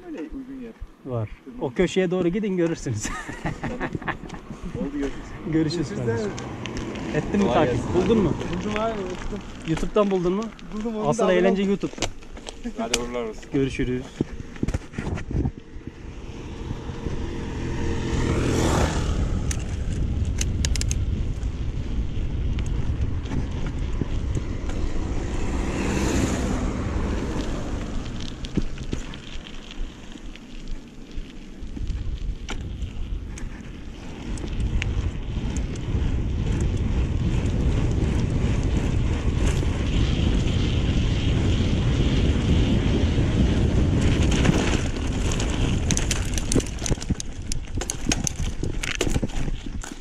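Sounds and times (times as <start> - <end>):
wind buffeting microphone: 0.6 - 50.0
bike clicking and rattling: 1.8 - 50.0.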